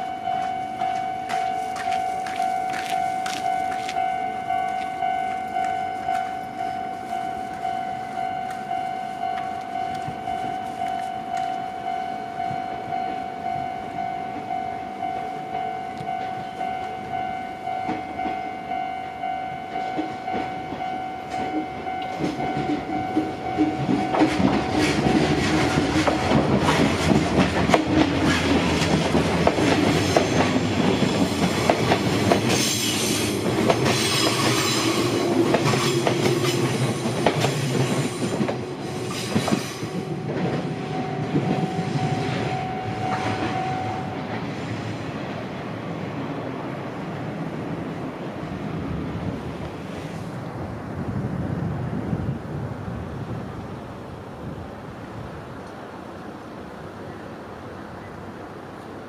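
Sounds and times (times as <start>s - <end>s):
level crossing bell ringing: 0.0s - 26.4s, 39.9s - 44.4s
train wheels clattering on rails: 0.3s - 11.6s, 16.0s - 18.9s, 19.7s - 48.1s.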